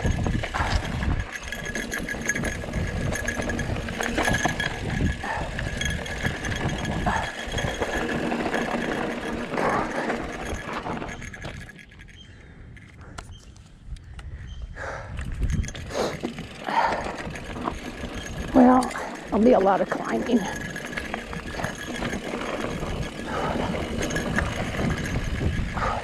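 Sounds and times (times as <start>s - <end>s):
bike rattling over stones: 0.0s - 13.4s, 15.2s - 26.0s
wind buffeting microphone: 0.0s - 26.0s
tyres crunching on gravel: 16.1s - 25.7s.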